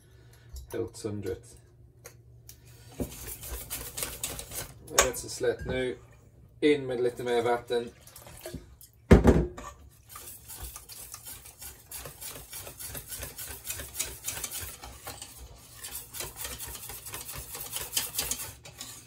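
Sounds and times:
whisk beating batter in metal bowl: 0:02.9 - 0:05.1, 0:09.7 - 0:19.0.

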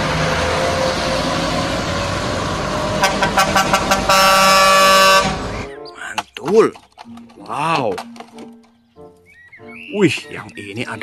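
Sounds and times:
truck diesel engines under load: 0:00.0 - 0:08.8
truck air horn: 0:02.9 - 0:05.6.

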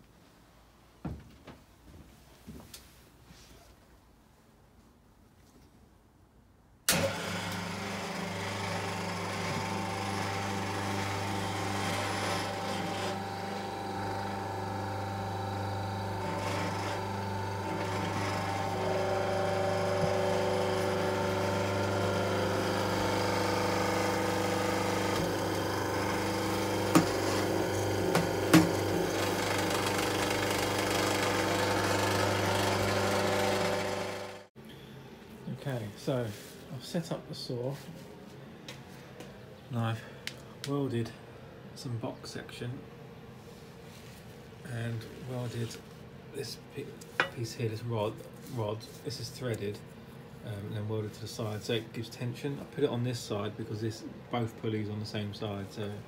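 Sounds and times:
electric motor humming: 0:06.9 - 0:34.5.

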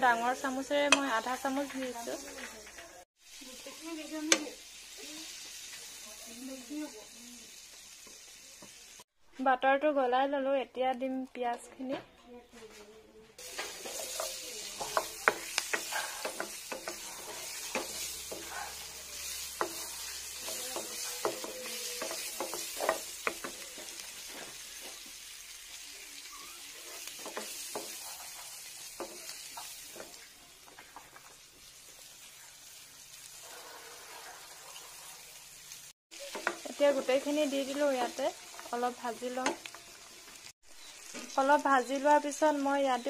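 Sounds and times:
onions sizzling in a pan: 0:00.0 - 0:09.1, 0:13.4 - 0:43.0
wooden spoon stirring in pan: 0:13.4 - 0:35.3, 0:36.2 - 0:41.4.

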